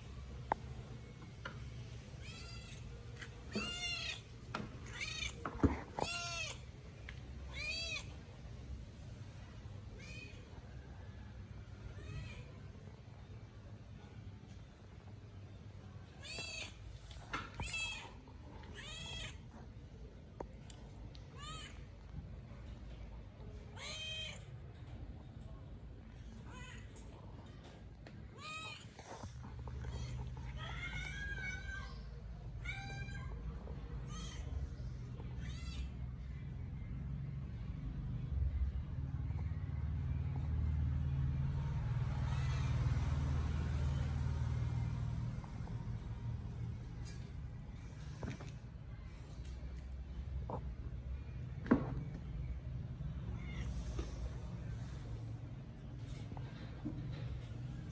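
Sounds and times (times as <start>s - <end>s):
cat meowing: 4.8s - 5.4s, 17.6s - 19.5s
engine rumbling: 36.0s - 57.9s.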